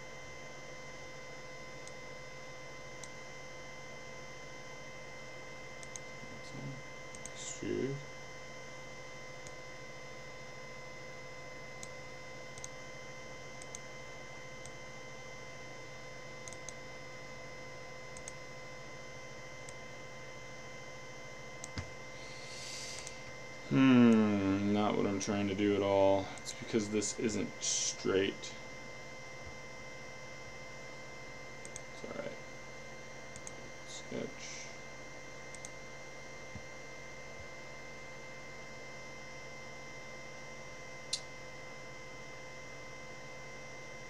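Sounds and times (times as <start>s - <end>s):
electrical hum with tones: 0.0s - 44.0s
computer mouse clicks: 5.8s - 6.1s, 7.1s - 7.4s, 11.8s - 12.8s, 13.6s - 13.8s, 16.4s - 16.8s, 18.2s - 18.4s, 21.6s - 21.9s, 23.0s - 23.2s, 31.6s - 31.9s, 33.3s - 33.6s, 35.5s - 35.8s
murmured voice: 23.7s - 24.9s.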